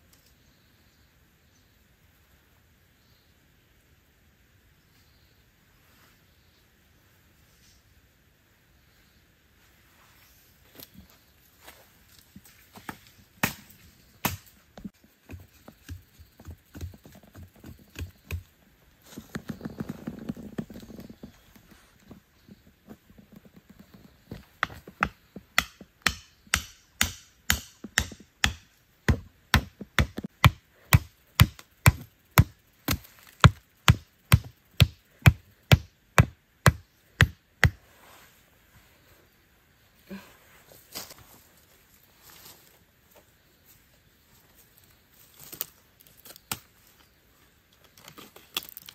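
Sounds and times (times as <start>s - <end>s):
stake being hammered: 13.4s - 14.5s, 24.6s - 37.8s
rustling scrape: 37.8s - 39.2s.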